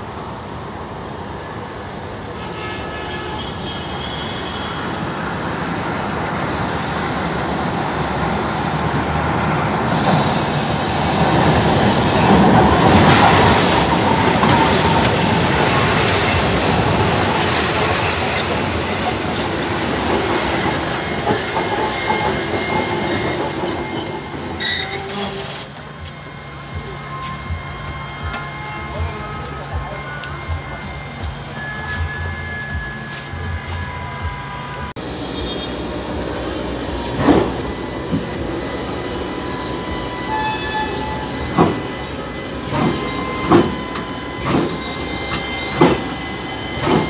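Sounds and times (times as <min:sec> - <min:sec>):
tram rumbling: 0:00.0 - 0:47.0
high-pitched wheel squeals: 0:12.0 - 0:35.7, 0:36.8 - 0:47.0.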